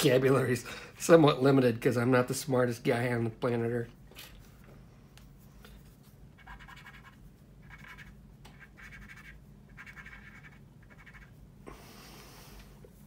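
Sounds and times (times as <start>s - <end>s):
cotton swab scratching on plastic: 6.4s - 11.4s.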